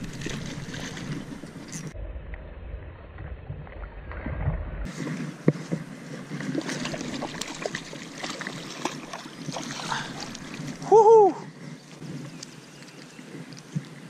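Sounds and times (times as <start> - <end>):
running stream water: 0.0 - 2.0, 3.7 - 14.0
wind rumble on microphone: 0.0 - 7.4
fish thrashing and splashing: 6.3 - 10.9.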